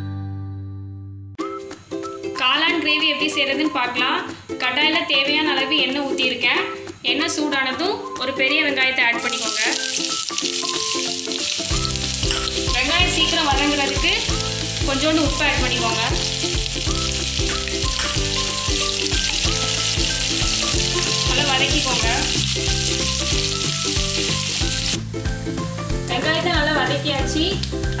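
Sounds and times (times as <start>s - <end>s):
onions sizzling in hot oil: 9.0s - 25.9s
background music with bass: 11.6s - 28.0s.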